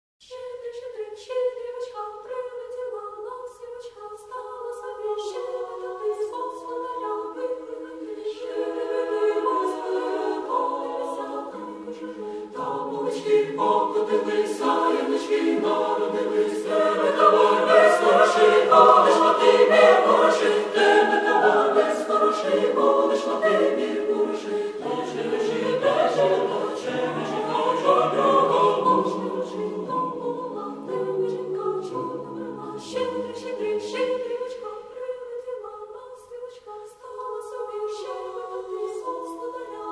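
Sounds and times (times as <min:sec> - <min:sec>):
choir singing a cappella: 0:00.3 - 0:39.9.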